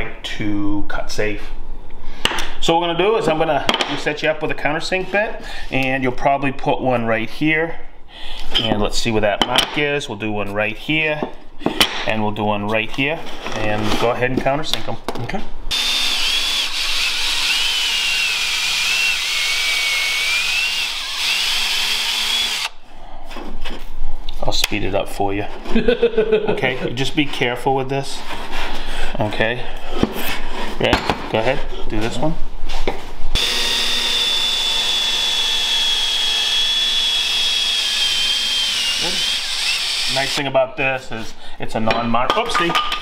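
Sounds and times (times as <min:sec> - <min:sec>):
cordless drill whining: 0:15.7 - 0:22.8, 0:33.4 - 0:40.4.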